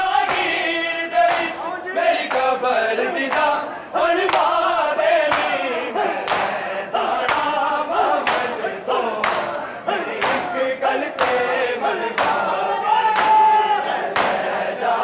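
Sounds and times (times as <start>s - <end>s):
men chanting in unison: 0.0s - 15.0s
hands slapping chests: 0.2s - 0.6s, 1.2s - 1.6s, 2.2s - 2.6s, 3.2s - 3.6s, 4.2s - 5.6s, 6.2s - 6.6s, 7.2s - 7.6s, 8.2s - 8.6s, 9.2s - 10.5s, 11.2s - 11.5s, 12.2s - 12.5s, 13.1s - 13.5s, 14.1s - 14.5s.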